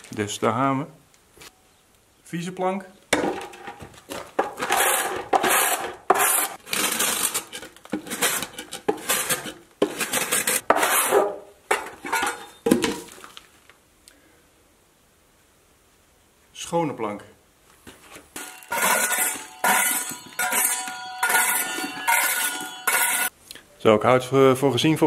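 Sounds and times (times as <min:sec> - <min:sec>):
scraper rasping on wooden plank: 0:04.7 - 0:07.4.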